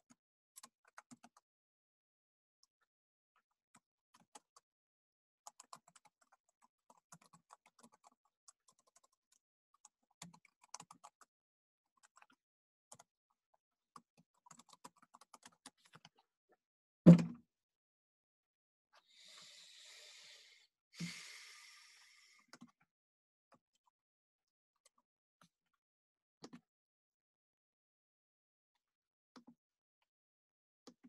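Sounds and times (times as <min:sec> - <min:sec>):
computer keyboard typing: 0:00.6 - 0:01.4, 0:06.9 - 0:09.2, 0:10.2 - 0:11.2, 0:14.4 - 0:15.8.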